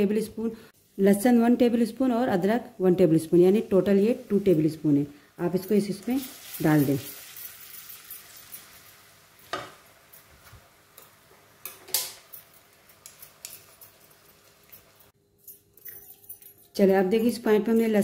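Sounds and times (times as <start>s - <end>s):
onions sizzling in oil: 0.8s - 15.1s
light taps and clinks: 12.2s - 18.0s.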